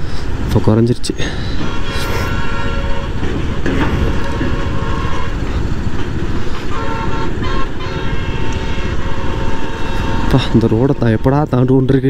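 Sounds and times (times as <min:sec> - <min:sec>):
road and wind noise: 0:00.0 - 0:12.0
motorcycle horn toot: 0:01.6 - 0:05.6, 0:06.6 - 0:11.1.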